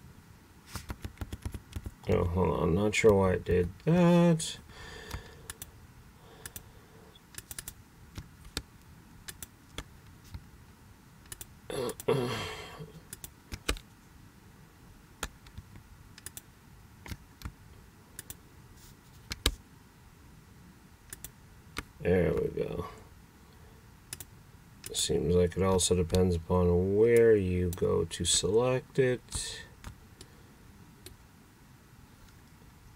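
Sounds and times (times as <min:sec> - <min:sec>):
mouse and keyboard clicks: 0:00.7 - 0:02.0.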